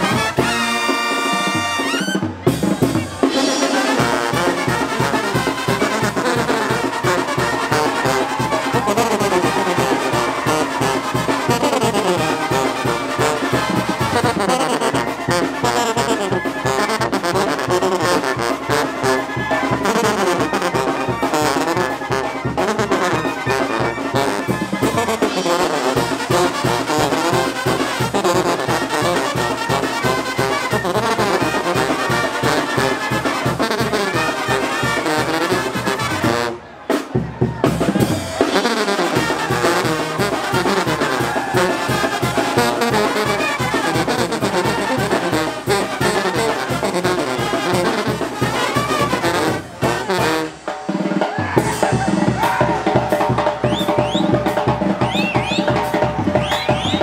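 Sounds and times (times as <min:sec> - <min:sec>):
sousaphone beat: 0:00.0 - 0:36.5, 0:37.1 - 0:57.0
brass band playing: 0:00.0 - 0:57.0
trumpets and clarinets: 0:00.0 - 0:57.0.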